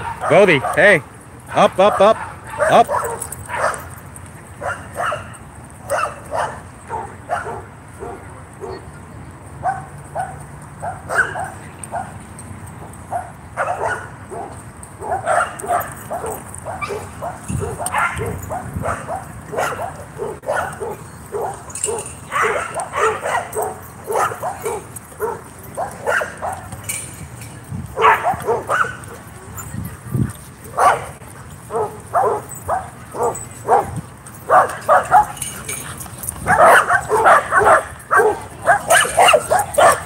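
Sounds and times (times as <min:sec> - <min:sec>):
dog barking: 0:01.5 - 0:03.8, 0:04.6 - 0:05.3, 0:05.9 - 0:08.8, 0:09.6 - 0:12.1, 0:13.1 - 0:26.7, 0:28.0 - 0:29.2, 0:30.7 - 0:33.9, 0:34.5 - 0:35.4, 0:36.4 - 0:40.0.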